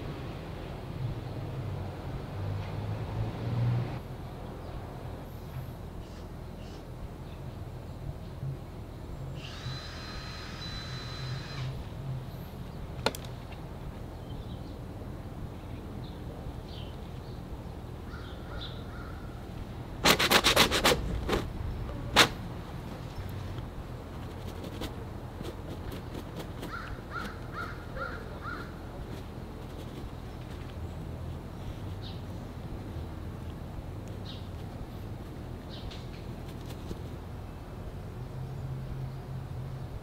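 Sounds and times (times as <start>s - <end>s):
steady low rumble: 0.0s - 3.2s, 3.9s - 9.4s, 11.7s - 20.1s, 20.9s - 40.0s
small birds chirping: 9.0s - 19.6s, 23.0s - 37.2s
harsh rapid rasping: 20.0s - 22.4s, 23.8s - 30.7s.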